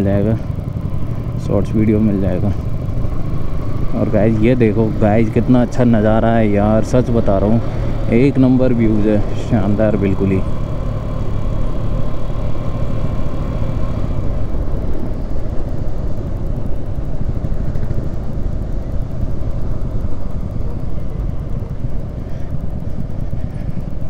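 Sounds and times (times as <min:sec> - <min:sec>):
faint motorcycle engine tone: 0:00.0 - 0:24.0
wind rumble on microphone: 0:13.6 - 0:24.0.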